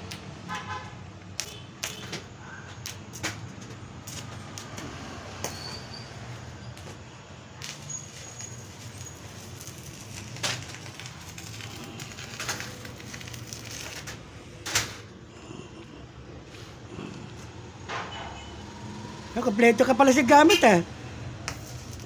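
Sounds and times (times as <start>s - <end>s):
arc welding crackling: 1.2s - 15.1s, 20.4s - 22.0s.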